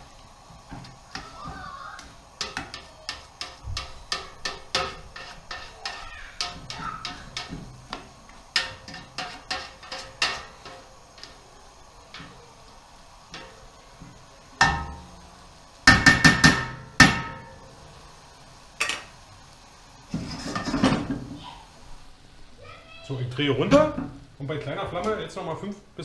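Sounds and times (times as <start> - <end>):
metal spoon knocking on a pot: 2.4 - 8.0, 8.6 - 10.9, 14.6 - 15.1, 15.9 - 17.6.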